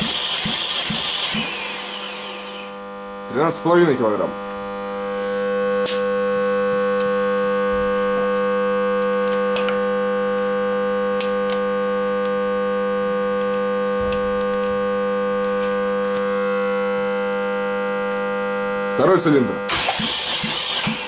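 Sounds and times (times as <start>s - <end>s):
drone of held tones: 4.3s - 11.2s.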